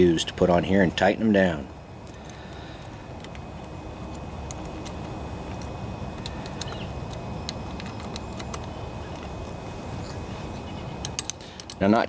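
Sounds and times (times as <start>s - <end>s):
steady low rumble: 0.0s - 12.0s.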